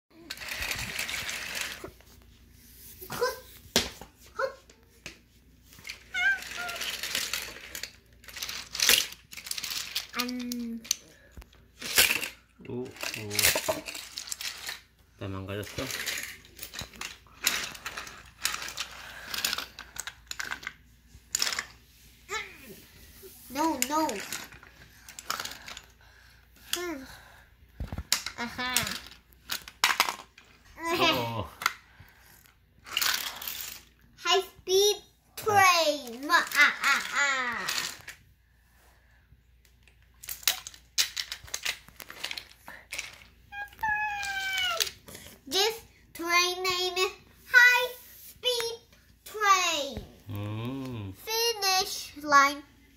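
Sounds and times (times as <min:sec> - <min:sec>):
toy train track pieces clattering: 0:00.2 - 0:01.9, 0:05.7 - 0:11.1, 0:11.7 - 0:21.8, 0:23.6 - 0:25.9, 0:27.8 - 0:31.8, 0:32.8 - 0:34.8, 0:35.4 - 0:38.2, 0:39.7 - 0:47.9.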